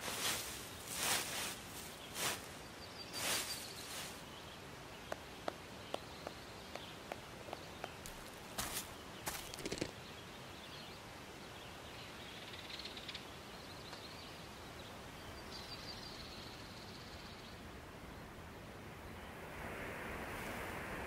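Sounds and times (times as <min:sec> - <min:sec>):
steady low hiss: 0:00.0 - 0:21.0
faint bird chirps: 0:00.3 - 0:18.3
short scuffing: 0:08.0 - 0:09.8.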